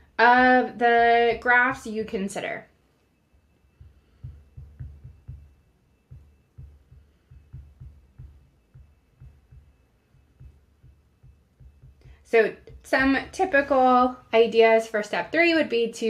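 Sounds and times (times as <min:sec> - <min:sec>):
stylus tapping on screen: 0:03.6 - 0:13.8.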